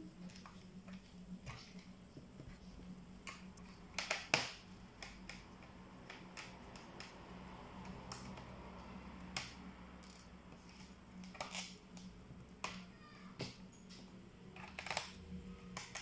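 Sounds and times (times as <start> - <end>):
faint low hum: 0.0 - 16.0
laptop parts clicking and tapping: 3.2 - 16.0.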